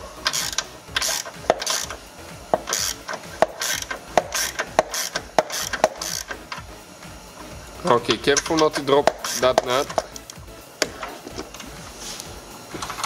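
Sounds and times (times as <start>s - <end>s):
hand ratchet clicking: 0.2s - 6.8s, 7.8s - 11.7s.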